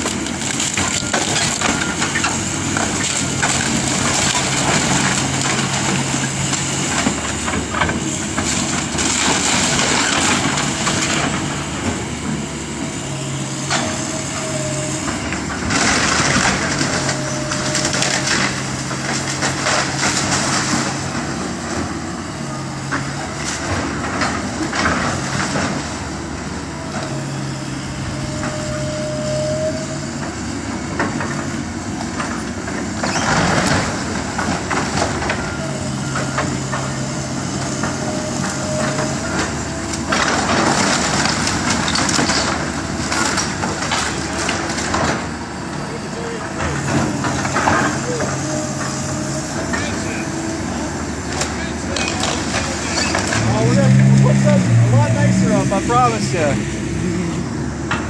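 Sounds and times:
falling debris: 0.0 - 12.0, 13.7 - 21.8, 32.1 - 45.3
splintering timber cracking and crashing: 0.0 - 27.2, 28.4 - 56.5
excavator diesel engine running: 0.0 - 58.0.

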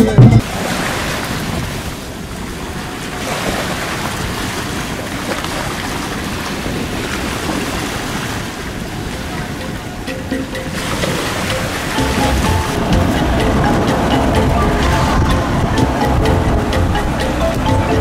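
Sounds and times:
wind buffeting microphone: 0.2 - 18.0
small waves washing on rocks: 0.4 - 9.6.

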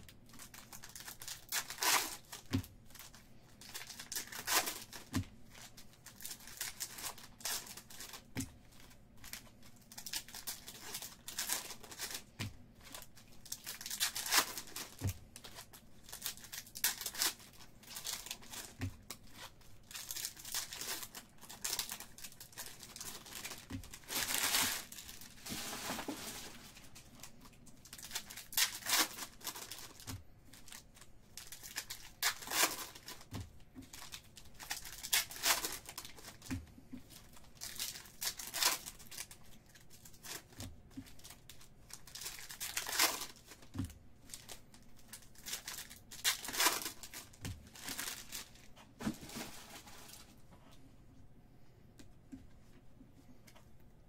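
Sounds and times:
wrappers crinkling and tearing: 0.0 - 50.4.

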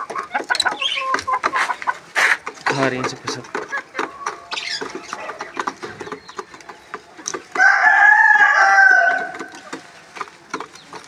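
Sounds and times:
pecking taps on plastic feeder: 0.0 - 8.0
chickens clucking: 0.0 - 11.0
rooster crowing: 7.6 - 9.5.

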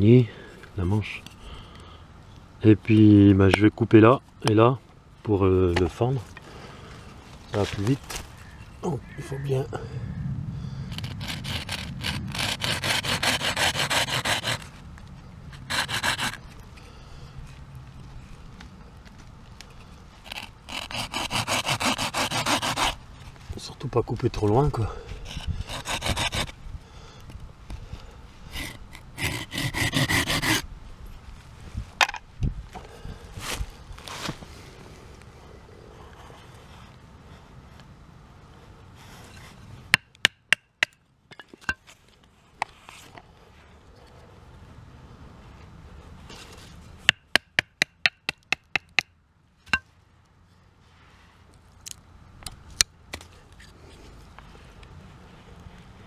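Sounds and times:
hand saw cutting wood: 11.0 - 14.7, 15.6 - 16.4, 20.2 - 23.0, 25.3 - 26.5, 28.5 - 30.6.

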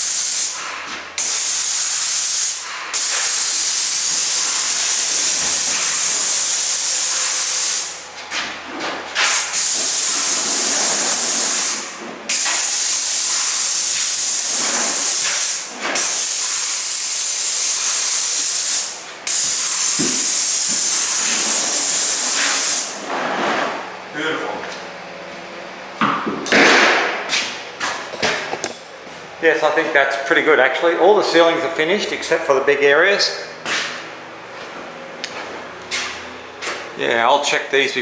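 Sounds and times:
paint spray gun hissing: 0.0 - 0.6, 1.2 - 8.0, 9.2 - 23.0.

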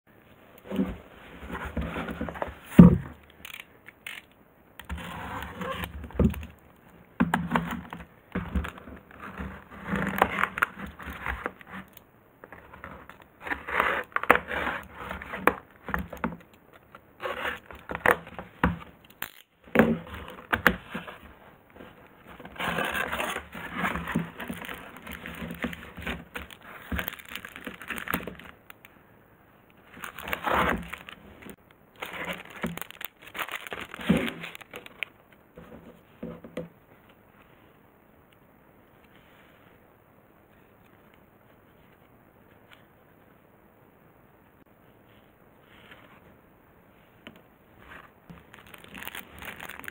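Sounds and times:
plastic packaging crinkling: 3.2 - 5.0, 19.0 - 19.6, 22.7 - 28.9, 29.8 - 35.2, 48.3 - 49.9
packing tape scraped and torn: 3.4 - 5.9, 17.2 - 18.4, 19.1 - 19.5, 22.5 - 28.6, 29.9 - 35.1, 48.4 - 49.9.

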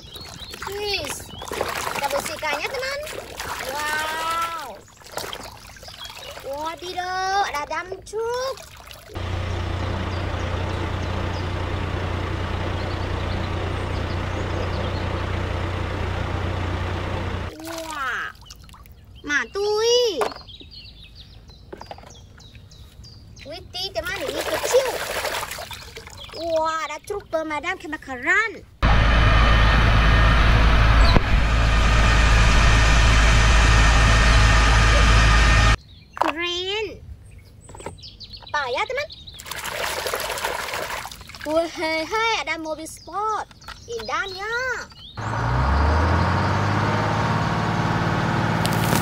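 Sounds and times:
diesel truck engine running: 9.1 - 17.5, 28.8 - 35.8, 45.1 - 49.0
soil dumping from truck bed: 48.5 - 49.0.

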